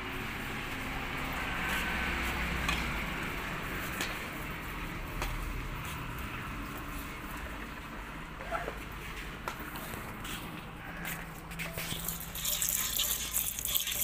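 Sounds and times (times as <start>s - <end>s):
cow crunching fodder: 11.8s - 14.0s.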